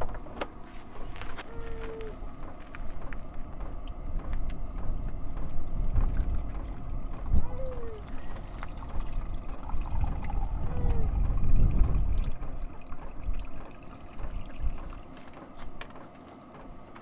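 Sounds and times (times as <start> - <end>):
low uneven rumble: 0.0 - 15.9
water trickling into plastic container: 4.6 - 15.2.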